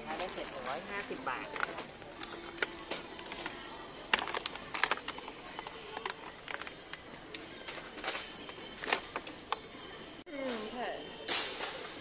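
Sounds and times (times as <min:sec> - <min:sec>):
plastic packaging rustling: 0:00.0 - 0:09.4
store background noise: 0:00.0 - 0:12.0.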